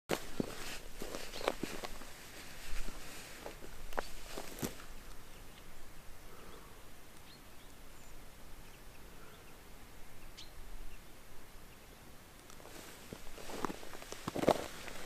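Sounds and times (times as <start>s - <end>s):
faint steady hiss: 0.1s - 15.0s
high bird chirps: 1.2s - 1.6s, 10.2s - 11.1s.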